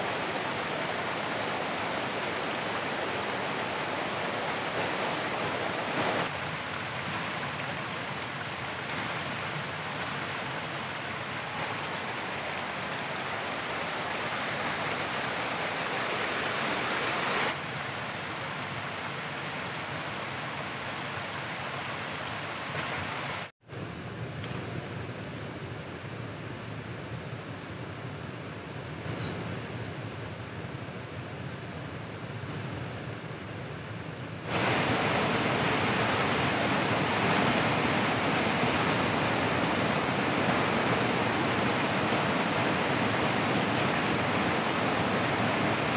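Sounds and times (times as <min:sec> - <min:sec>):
stream rushing over rocks: 0:00.0 - 0:23.5, 0:34.5 - 0:45.9.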